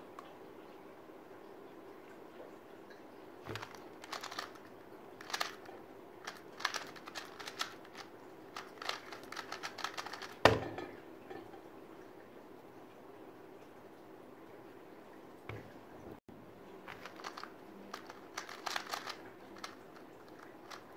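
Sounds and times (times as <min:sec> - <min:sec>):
plastic cube clicking: 0:03.5 - 0:04.6, 0:05.2 - 0:10.4, 0:16.9 - 0:20.9
thump: 0:10.4 - 0:10.8.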